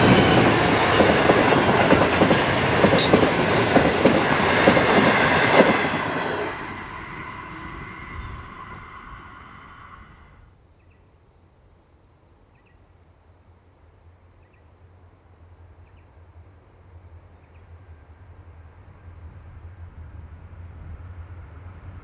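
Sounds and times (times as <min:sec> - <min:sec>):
freight train passing: 0:00.0 - 0:10.5, 0:18.6 - 0:22.0
steady low rumble: 0:05.8 - 0:10.4.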